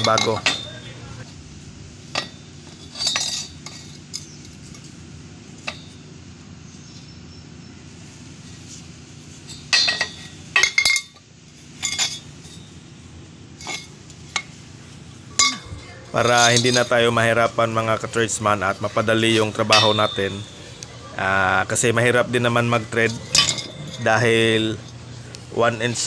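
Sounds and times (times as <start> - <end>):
metal pipe clinking on tiled floor: 19.4 - 20.6, 23.1 - 24.1.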